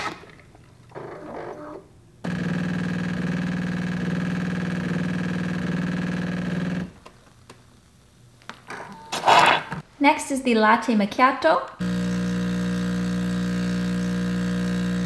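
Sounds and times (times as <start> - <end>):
espresso machine pump humming: 2.3 - 6.9, 11.8 - 15.0.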